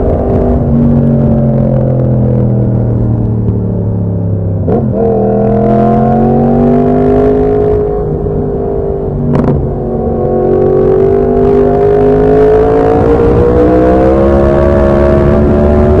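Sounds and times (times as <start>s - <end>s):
wind on microphone: 0.0s - 3.6s.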